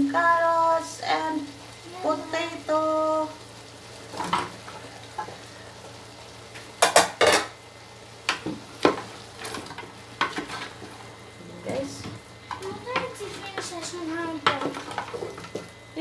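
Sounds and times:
vegetables tumbling in pot: 4.0s - 5.5s, 8.2s - 16.0s.

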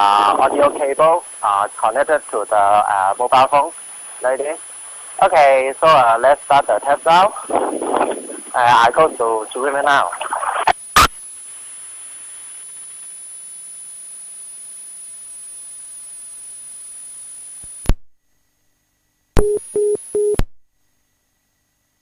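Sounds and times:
phone line hiss with whine: 0.0s - 18.0s, 19.4s - 20.4s
short beeps: 19.4s - 20.4s.

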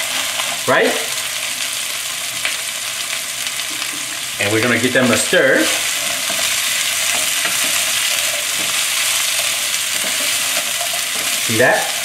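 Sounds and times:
vegetables sizzling in oil: 0.0s - 12.0s
wooden spatula scraping pan: 5.6s - 11.5s.

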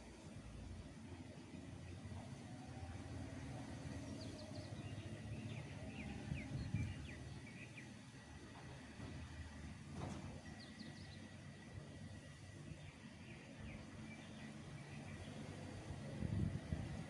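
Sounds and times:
small birds chirping: 3.8s - 8.2s, 10.4s - 11.6s, 12.2s - 16.1s.

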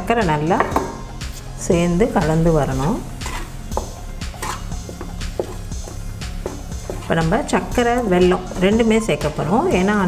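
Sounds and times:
background music: 0.0s - 10.0s
spatula scraping a pan: 3.0s - 9.4s.

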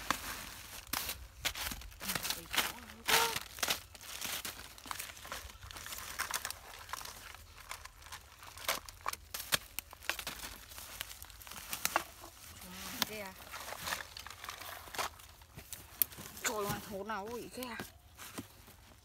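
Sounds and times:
plastic bags and grass rustling: 0.0s - 19.0s.

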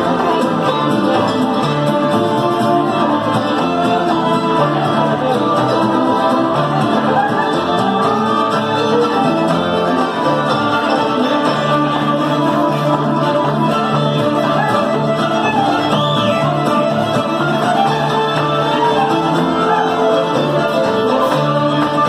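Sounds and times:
fiddles bowing melody: 0.0s - 22.0s
strummed guitar: 0.0s - 22.0s
walking bass line: 0.0s - 22.0s.

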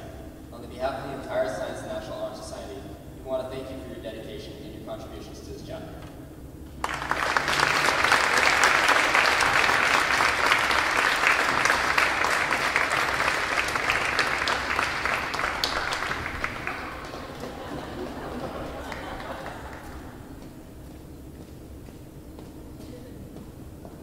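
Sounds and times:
audience applauding: 6.8s - 20.3s.

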